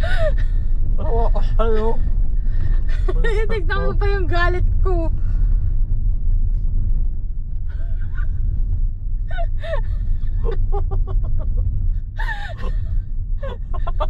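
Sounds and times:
car engine and road noise: 0.0 - 14.0
person laughing: 9.3 - 14.0.

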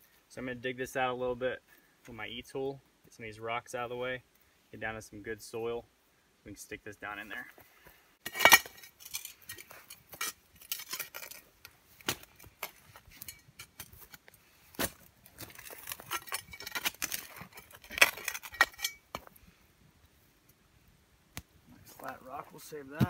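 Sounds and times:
shovel clinking on stones: 8.2 - 11.4, 13.0 - 14.2, 15.4 - 19.3
shovel digging into rocky soil: 12.0 - 19.4.

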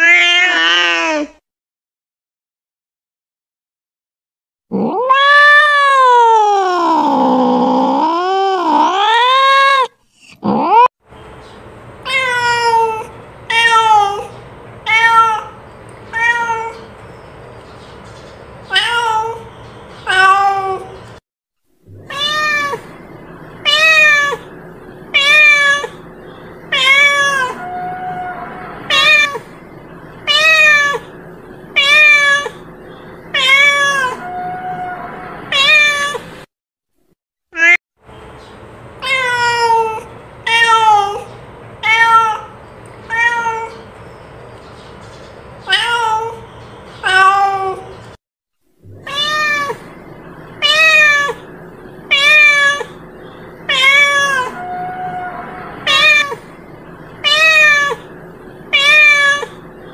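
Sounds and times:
cat meowing: 0.0 - 1.3, 4.7 - 10.9, 12.1 - 14.3, 14.9 - 16.9, 18.7 - 21.0, 21.9 - 23.0, 23.6 - 24.5, 25.1 - 26.0, 26.7 - 29.5, 30.2 - 32.7, 33.3 - 36.3, 37.6 - 37.8, 39.0 - 43.8, 45.6 - 46.4, 47.0 - 47.9, 49.0 - 49.9, 50.6 - 51.5, 52.1 - 53.0, 53.6 - 58.1, 58.7 - 59.6.

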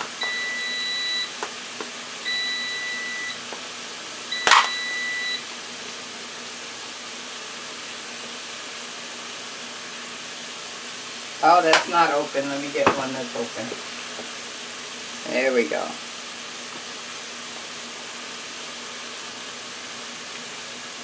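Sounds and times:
long high timer beeps: 2.3 - 3.4, 4.4 - 5.4.

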